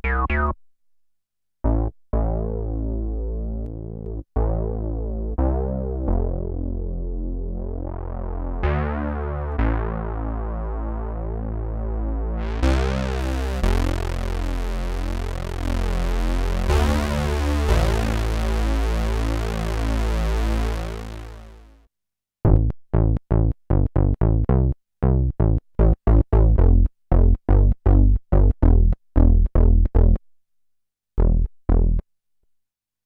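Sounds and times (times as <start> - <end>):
held synth bass notes: 0.0 - 0.6, 1.6 - 21.6, 22.5 - 30.2, 31.2 - 32.0
staccato synth bass notes: 0.0 - 0.6, 12.3 - 21.5.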